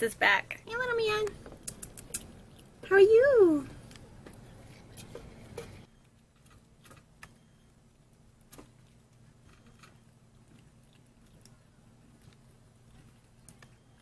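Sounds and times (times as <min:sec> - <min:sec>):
squirrel nibbling clicks and taps: 0:01.2 - 0:02.8.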